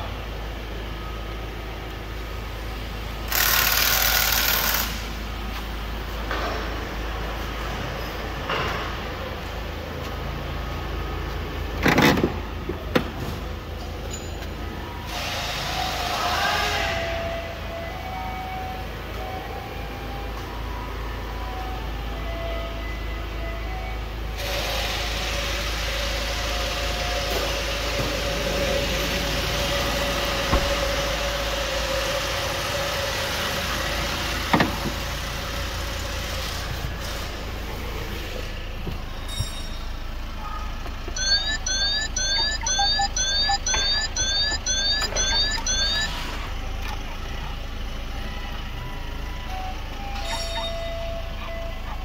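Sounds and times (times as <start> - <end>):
diesel engine idling: 0.0 - 52.0
electronic warning chime beeps: 41.2 - 46.4.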